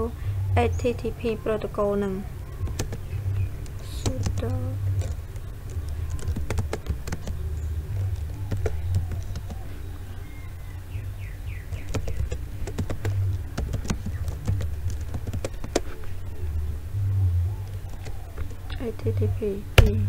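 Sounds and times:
steady low hum: 0:00.0 - 0:20.0
keyboard typing: 0:02.6 - 0:10.0, 0:11.6 - 0:16.2, 0:17.6 - 0:18.9.

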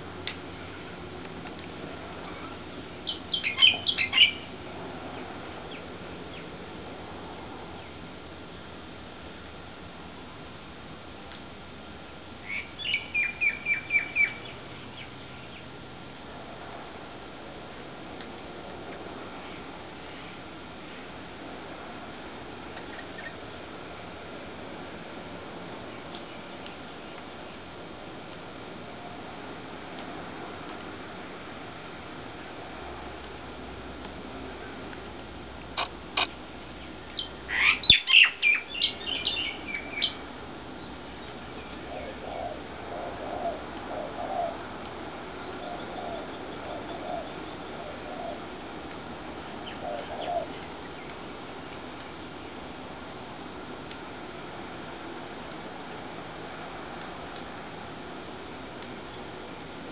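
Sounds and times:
steady hiss: 0:00.0 - 0:59.9
bird calling: 0:02.2 - 0:04.6, 0:12.4 - 0:15.6, 0:35.8 - 0:40.2, 0:41.2 - 0:44.6, 0:45.4 - 0:48.5, 0:49.4 - 0:51.2
bird chattering: 0:02.4 - 0:04.5, 0:37.2 - 0:40.2.

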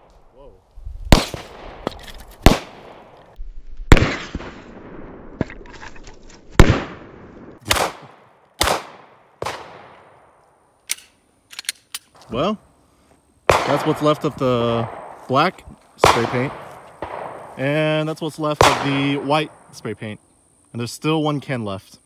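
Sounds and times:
pistol shots with echo: 0:01.1 - 0:03.1, 0:03.9 - 0:04.6, 0:06.6 - 0:10.2, 0:13.5 - 0:15.2, 0:16.0 - 0:17.6, 0:18.5 - 0:19.4.

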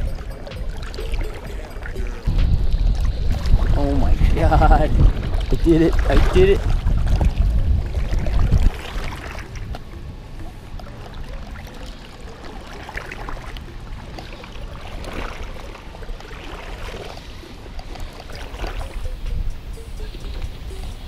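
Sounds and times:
low rumble: 0:00.0 - 0:11.6
small splashes: 0:00.0 - 0:19.1
river current rushing: 0:00.0 - 0:21.0.

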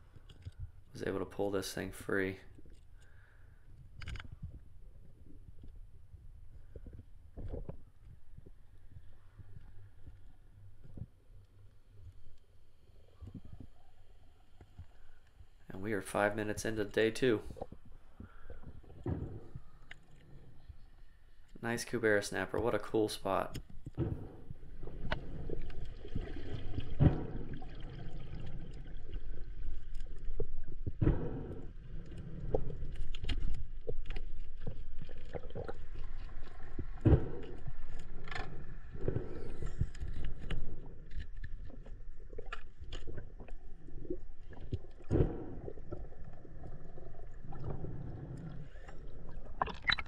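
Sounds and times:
water sloshing and splashing: 0:16.1 - 0:50.0
irregular knocks and bumps: 0:17.7 - 0:19.7, 0:23.8 - 0:25.2.

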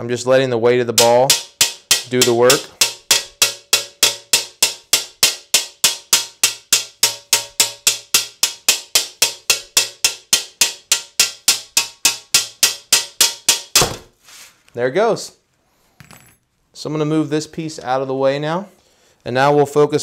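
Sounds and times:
hammer tapping on glass: 0:01.0 - 0:14.0.

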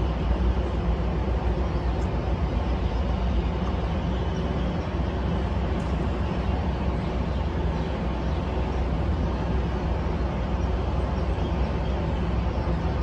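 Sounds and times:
traffic rumble on bridge: 0:00.0 - 0:13.0.

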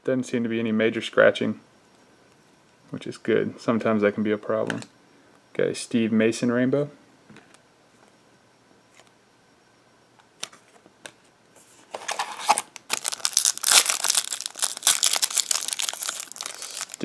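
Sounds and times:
card pack wrapper crinkling: 0:11.9 - 0:17.0.

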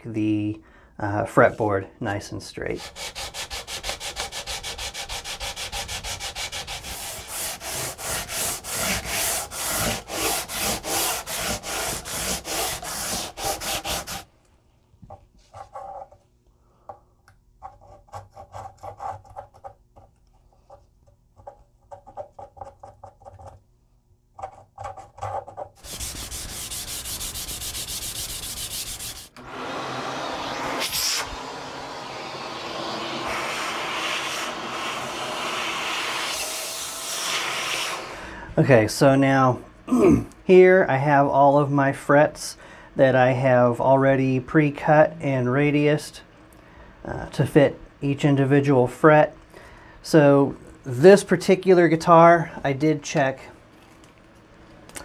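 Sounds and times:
hand tool scraping: 0:02.7 - 0:14.3, 0:24.8 - 0:29.4
sanding strokes on wood: 0:02.7 - 0:14.3, 0:25.8 - 0:29.4
vacuum cleaner running: 0:03.0 - 0:14.2, 0:25.8 - 0:38.4.

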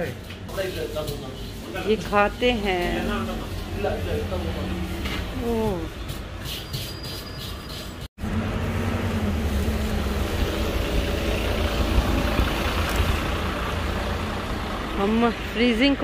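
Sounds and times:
low rumble of street traffic: 0:00.0 - 0:16.0
bus engine passing close: 0:08.2 - 0:16.0.

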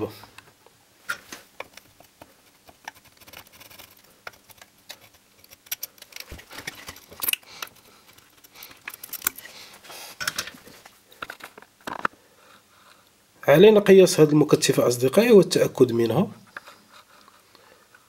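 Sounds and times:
soldering iron clicks and scratches: 0:01.6 - 0:09.5.

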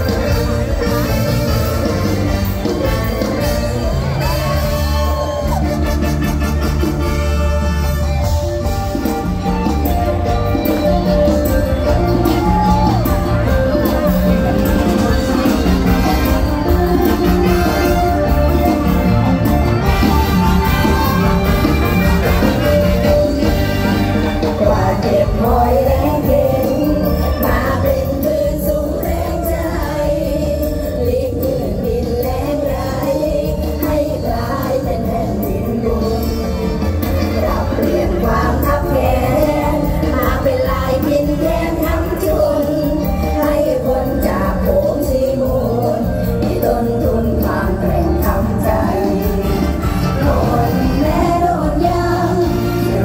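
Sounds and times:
live band music on stage: 0:00.0 - 0:53.0
woman singing into a microphone: 0:24.5 - 0:53.0.

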